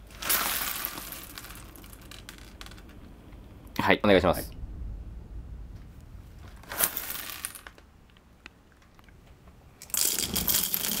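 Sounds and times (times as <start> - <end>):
single beans ticking: 0.0 - 3.1
coffee beans rattling into grinder: 0.1 - 2.9, 9.8 - 11.0.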